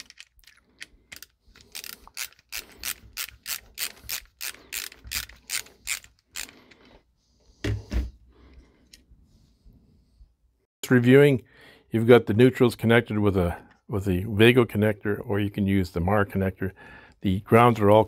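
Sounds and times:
ratcheting screwdriver clicking: 0.0s - 6.6s.

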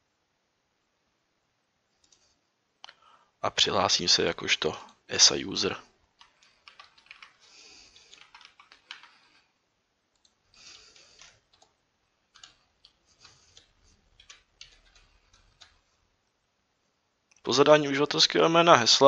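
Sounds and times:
keyboard typing: 2.0s - 2.3s, 6.1s - 9.4s, 10.1s - 16.0s.

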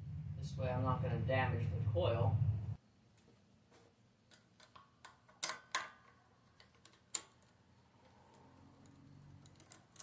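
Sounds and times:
screwdriver metallic clicks: 4.3s - 7.6s.

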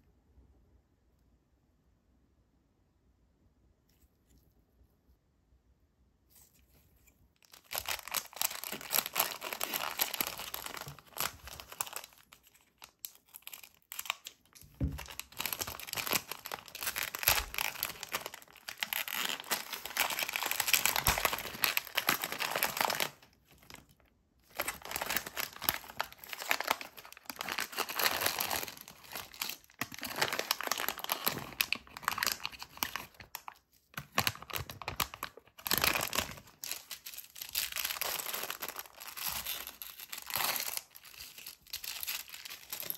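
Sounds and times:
plastic bag crinkling and tearing: 7.4s - 42.9s
plastic bag rustling: 7.5s - 12.8s, 14.6s - 23.9s, 24.5s - 33.3s.

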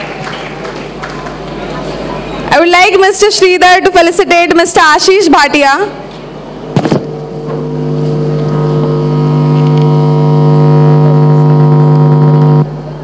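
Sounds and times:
low droning tone: 6.5s - 13.0s.

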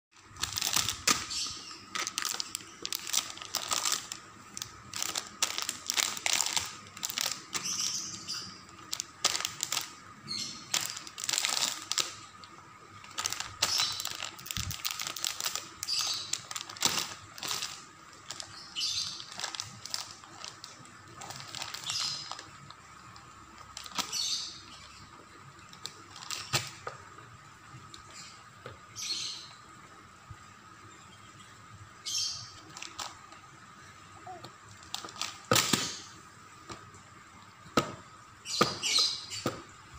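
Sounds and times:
plastic packaging crinkling: 0.2s - 25.0s, 25.6s - 26.9s, 32.6s - 33.4s, 34.3s - 36.1s
faint high hum: 0.2s - 39.9s.

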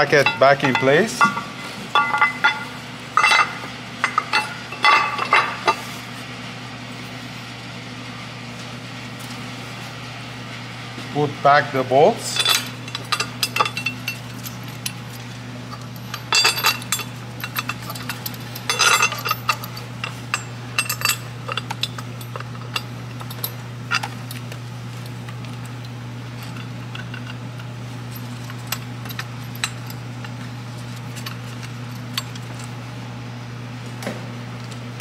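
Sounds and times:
metal bolts clinking and rattling: 0.0s - 5.8s, 12.3s - 25.8s, 26.4s - 32.7s
steady low hum: 0.0s - 35.0s.

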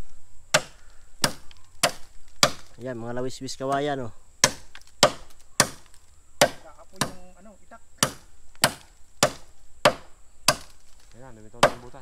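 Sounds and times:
knife chopping bamboo: 0.5s - 2.8s, 4.4s - 7.3s, 8.0s - 10.8s, 11.6s - 12.0s.

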